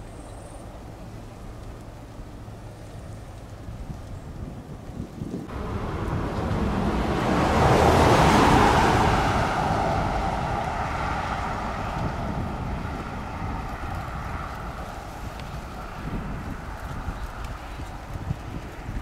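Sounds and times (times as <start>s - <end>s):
vehicle passing: 5.4s - 19.0s.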